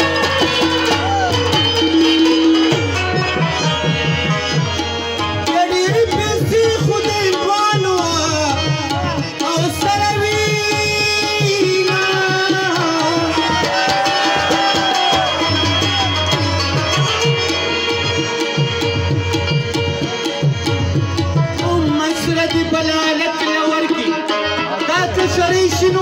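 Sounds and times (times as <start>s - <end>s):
hand drum playing: 0.0s - 7.3s, 9.8s - 22.8s
harmonium melody: 0.0s - 26.0s.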